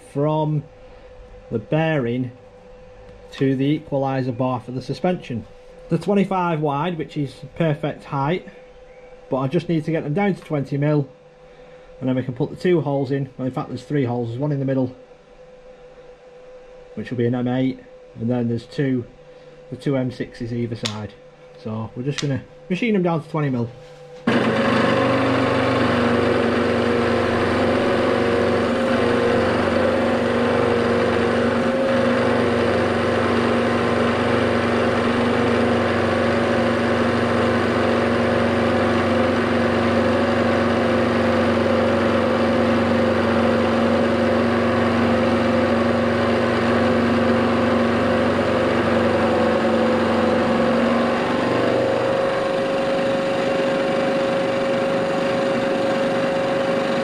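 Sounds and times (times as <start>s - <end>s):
milling machine cutting metal: 24.3s - 57.0s.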